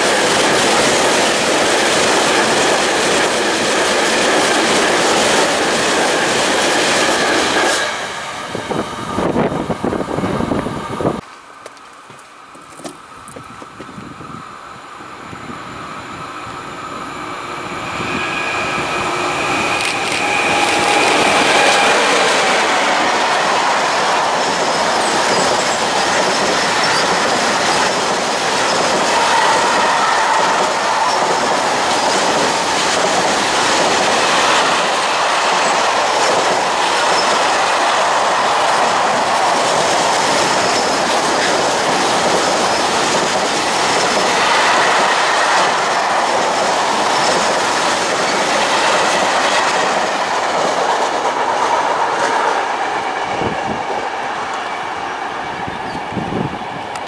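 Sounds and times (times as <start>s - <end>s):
train wheels rumbling on rails: 0.0s - 57.0s
clickety-clack over rail joints: 11.6s - 13.9s, 19.8s - 54.7s.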